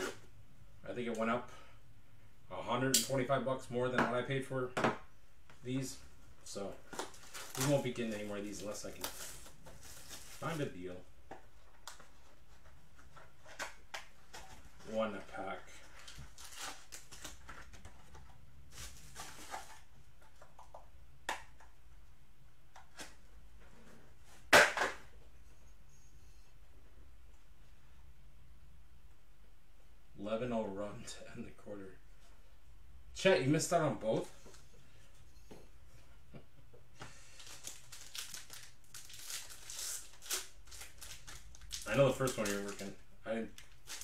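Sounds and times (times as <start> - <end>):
foil pack rustling: 6.9 - 10.7, 37.3 - 43.0, 43.6 - 44.0.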